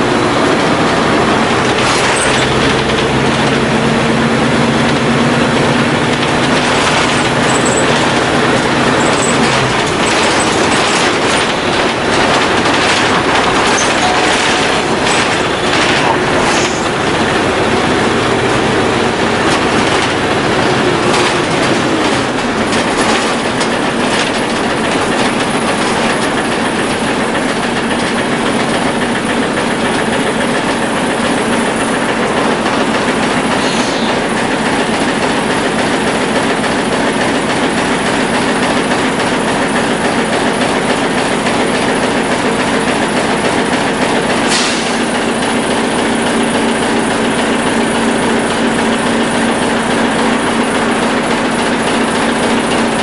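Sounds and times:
bus diesel engine running: 0.0 - 53.0.

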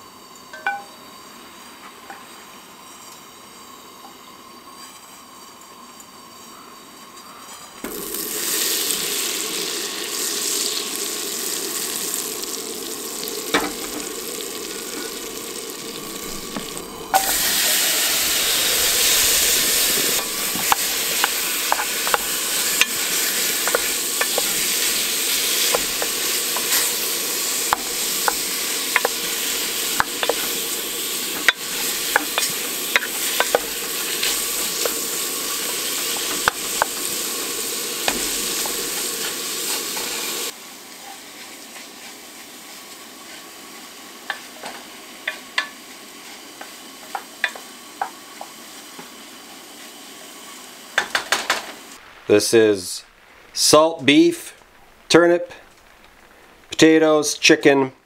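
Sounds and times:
food sizzling in a pot: 0.0 - 58.0
wooden spoon scraping a pot: 19.0 - 37.0.

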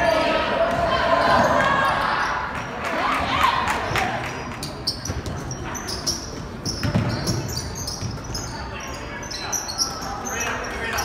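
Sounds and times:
sneaker squeaks: 4.2 - 11.0
basketball bouncing on wooden floor: 6.3 - 8.4.

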